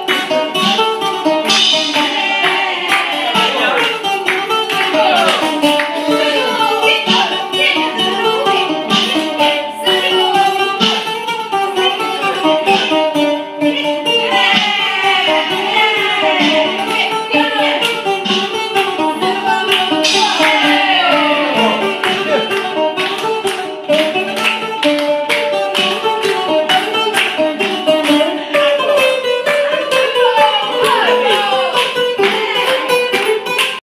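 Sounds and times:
bouzouki melody: 0.0s - 33.8s
electronic drum beat: 0.2s - 9.5s, 14.3s - 30.2s.

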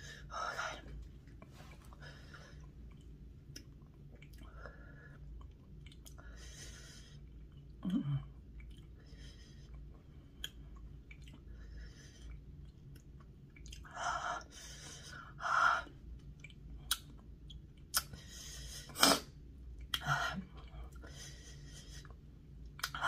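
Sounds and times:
wet chewing clicks and smacks: 2.5s - 6.4s, 7.2s - 9.0s, 9.6s - 14.0s, 16.0s - 18.2s, 22.1s - 23.0s.

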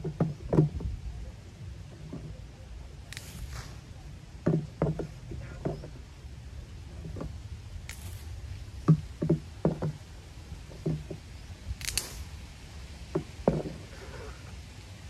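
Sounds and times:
dull knocks: 0.0s - 0.9s, 4.4s - 6.0s, 8.8s - 10.0s, 10.7s - 11.2s, 13.1s - 13.9s
short hiss: 3.1s - 4.0s, 7.8s - 8.6s, 11.8s - 12.6s.

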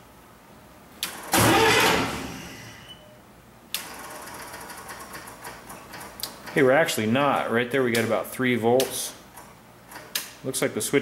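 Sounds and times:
burst of starting-circuit noise: 1.1s - 3.0s.

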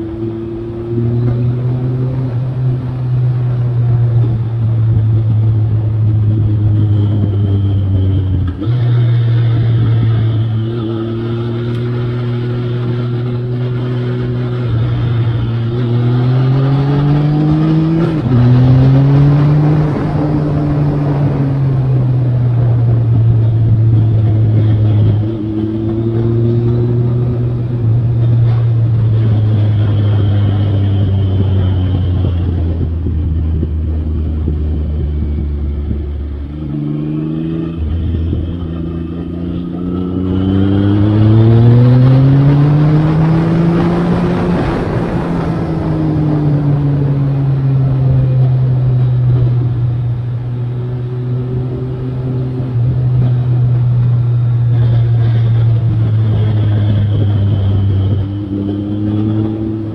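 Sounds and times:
motorcycle engine revving: 0.0s - 59.9s
wind rush: 12.0s - 39.0s, 39.6s - 59.9s.

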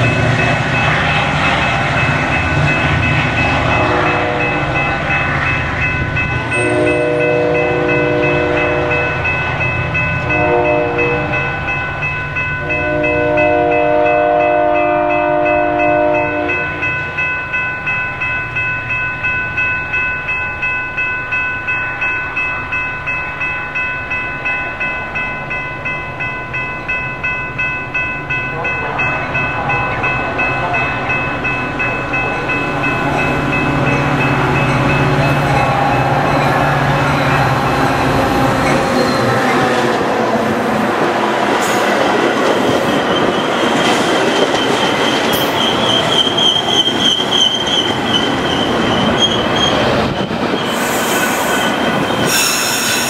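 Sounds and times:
crossing bells ringing: 0.0s - 53.0s
train horn blast: 3.7s - 4.8s, 6.6s - 9.2s, 10.2s - 11.7s, 12.6s - 16.9s.

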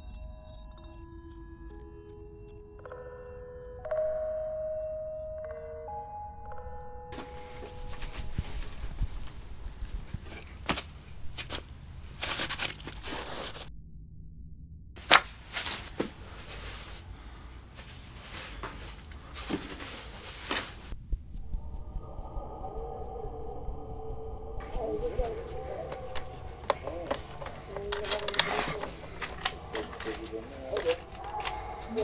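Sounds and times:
rustling and handling noises: 7.2s - 13.7s, 15.0s - 21.0s, 24.6s - 32.0s.

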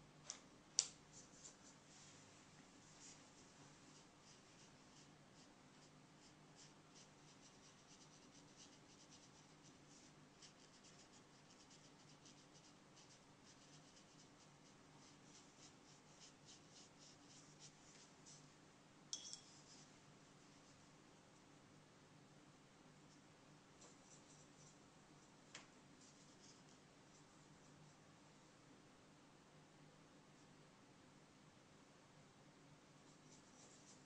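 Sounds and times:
faint low hum: 0.0s - 34.0s
paintbrush strokes on paper: 1.1s - 18.6s, 19.4s - 20.8s, 23.8s - 24.9s, 25.9s - 27.9s, 33.0s - 34.0s
sharp ringing tap: 19.1s - 19.4s.

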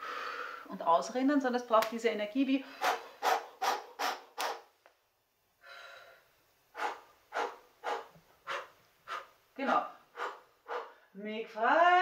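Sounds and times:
long soft breath: 0.0s - 0.7s, 5.6s - 9.3s, 10.0s - 11.2s
sharp exhaled breath puffs: 2.6s - 4.7s, 5.6s - 11.2s.

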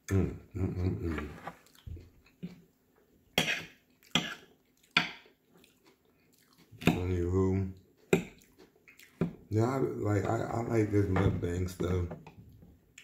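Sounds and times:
man murmuring: 0.0s - 1.4s
faint chewing: 1.6s - 2.7s, 3.4s - 9.5s.

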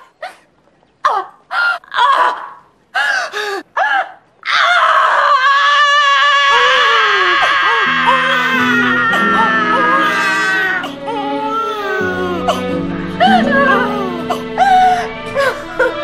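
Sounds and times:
woman screaming: 3.8s - 12.6s, 13.2s - 15.9s
woman crying and gasping: 7.1s - 16.0s
low music tones: 7.8s - 16.0s.

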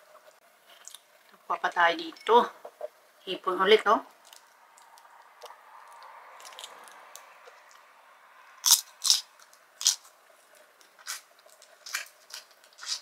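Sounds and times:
shrimp shell crunching: 6.4s - 6.8s, 8.6s - 10.2s, 10.8s - 13.0s.

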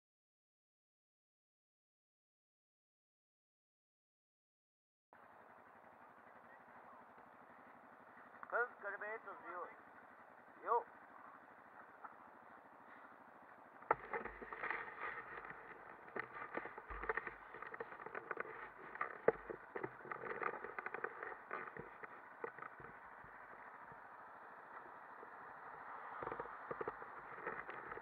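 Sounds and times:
muffled rumble and rattle: 5.2s - 28.0s
crackling knocks: 13.5s - 28.0s.

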